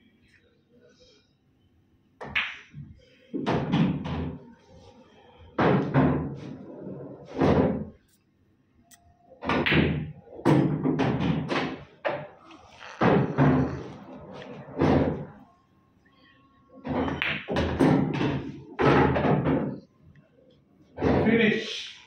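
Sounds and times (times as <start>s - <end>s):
pool balls knocking: 5.6s - 8.0s, 9.4s - 15.4s, 16.8s - 19.8s.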